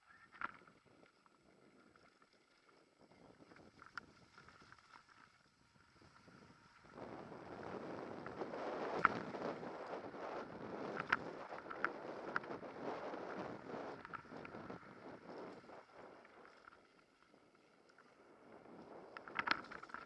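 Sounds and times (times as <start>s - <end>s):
bike tyres on dirt: 0.1s - 20.0s
wind on microphone: 5.9s - 17.5s
bike rattling and clicking: 7.8s - 15.7s, 19.2s - 20.0s.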